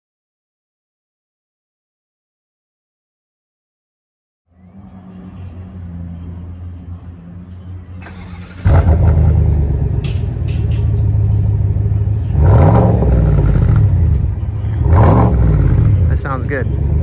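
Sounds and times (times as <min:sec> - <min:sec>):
truck engine idling and revving: 0:04.5 - 0:17.0.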